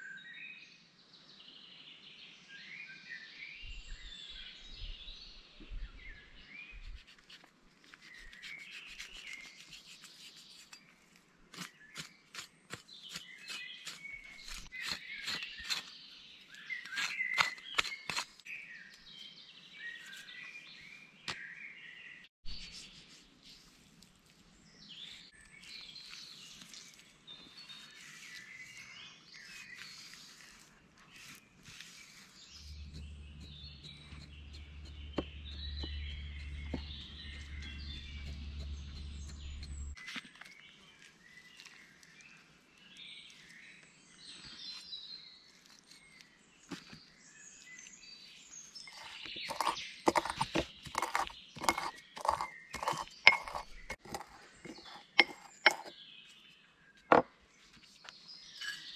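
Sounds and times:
small birds chirping: 0:01.2 - 0:58.9
pestle pounding in mortar: 0:48.9 - 0:55.9.

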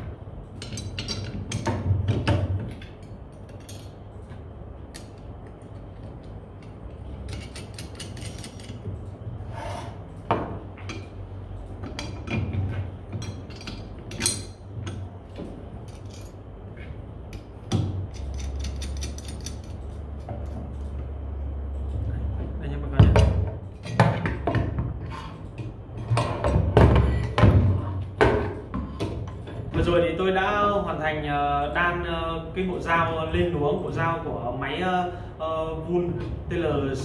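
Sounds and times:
metallic clicks and clinks: 0:02.7 - 0:09.2, 0:18.1 - 0:21.0.

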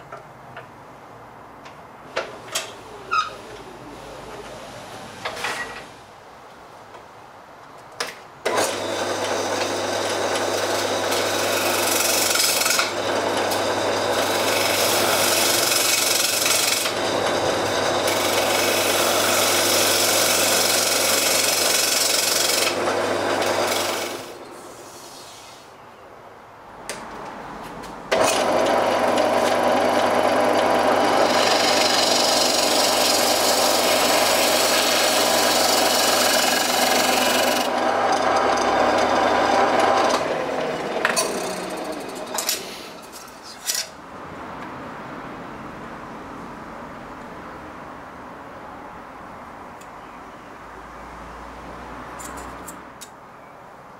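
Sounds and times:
turning tool rasping wood: 0:08.8 - 0:24.3, 0:28.2 - 0:42.8
lathe motor hum: 0:28.2 - 0:42.4.

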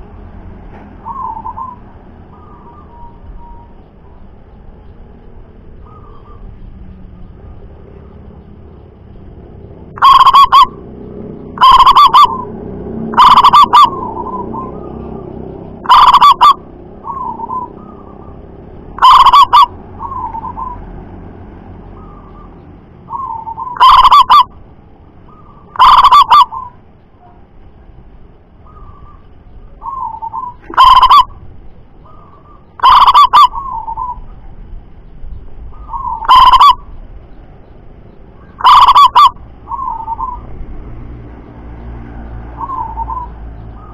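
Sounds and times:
dove cooing: 0:01.0 - 0:03.8, 0:05.8 - 0:06.6, 0:09.9 - 0:12.5, 0:13.1 - 0:18.4, 0:19.0 - 0:20.9, 0:22.0 - 0:24.6, 0:25.3 - 0:27.4, 0:29.8 - 0:31.4, 0:32.0 - 0:34.4, 0:35.7 - 0:36.9, 0:38.4 - 0:40.6, 0:42.5 - 0:43.9.

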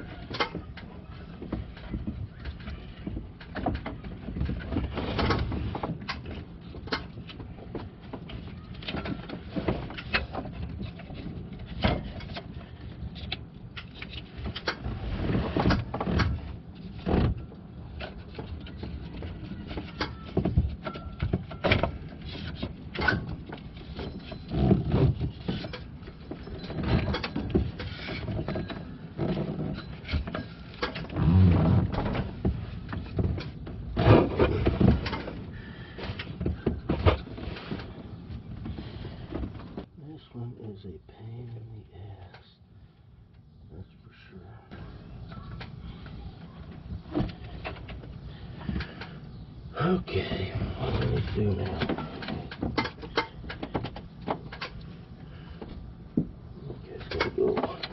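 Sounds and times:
rubber belt rubbing on pulleys: 0:23.6 - 0:33.2
low voice-like sounds: 0:49.7 - 0:52.4, 0:56.6 - 0:57.9.

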